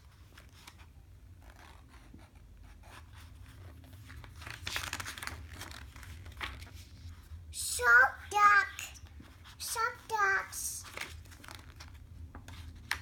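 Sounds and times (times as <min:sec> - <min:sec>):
paper pages rustling: 0:02.8 - 0:07.3, 0:10.8 - 0:13.0
page being turned: 0:03.4 - 0:06.9, 0:10.8 - 0:13.0.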